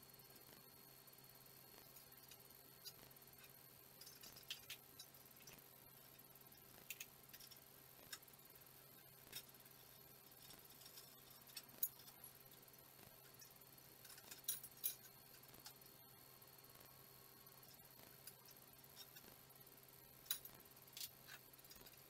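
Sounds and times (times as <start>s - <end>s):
small metal parts clicking: 1.9s - 5.6s, 6.8s - 8.3s, 9.0s - 15.9s, 17.6s - 19.4s, 20.2s - 22.0s.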